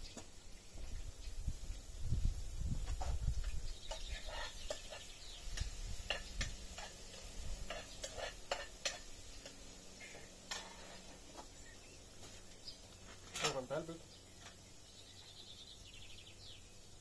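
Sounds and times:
utensils tapping a plate: 0:03.8 - 0:11.1.

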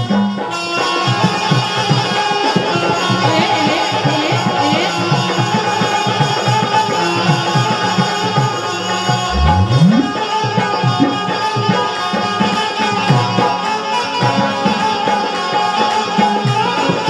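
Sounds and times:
hand drum rhythm: 0:06.1 - 0:11.8
sustained melody line: 0:09.2 - 0:11.2
deep drum stroke rising in pitch: 0:09.3 - 0:10.4.

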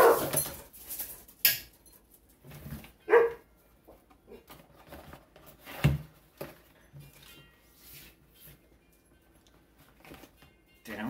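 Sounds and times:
dog barking: 0:00.0 - 0:00.3, 0:03.1 - 0:03.4
handling noises from case and box: 0:04.4 - 0:08.2, 0:09.8 - 0:10.5.

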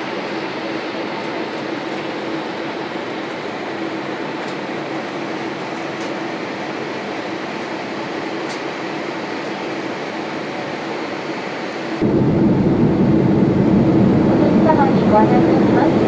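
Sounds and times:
airliner cabin engine and airflow: 0:00.0 - 0:16.0
steady low hum: 0:09.0 - 0:16.0.

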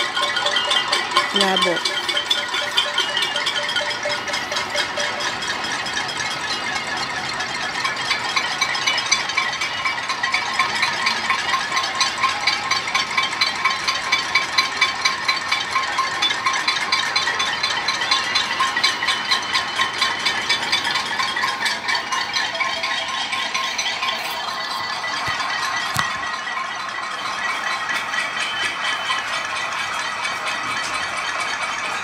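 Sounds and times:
metal pots and pans banging: 0:00.0 - 0:07.1.

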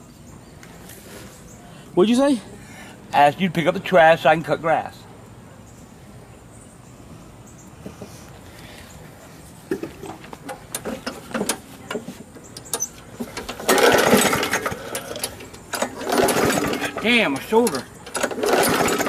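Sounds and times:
engine cranking with clattering rattles: 0:09.8 - 0:19.0
lawn mower recoil starter pulls: 0:09.9 - 0:19.0.

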